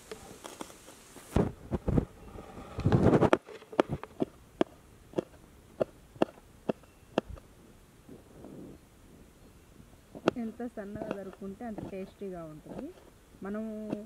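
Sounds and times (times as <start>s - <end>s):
burst of noise: 0.0s - 4.1s
knife chopping on wooden board: 10.2s - 12.0s.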